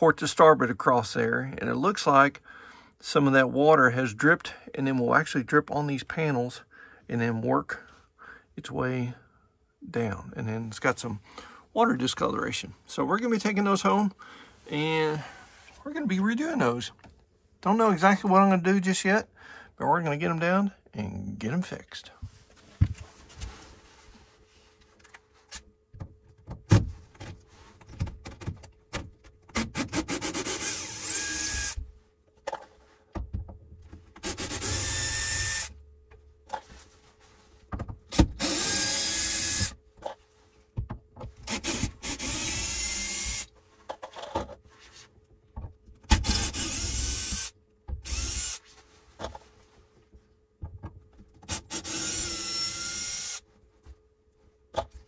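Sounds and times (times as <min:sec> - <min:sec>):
cordless drill whining: 0:29.9 - 0:31.8, 0:34.2 - 0:35.7, 0:38.3 - 0:39.8, 0:41.5 - 0:43.5, 0:46.2 - 0:48.6, 0:51.5 - 0:53.4.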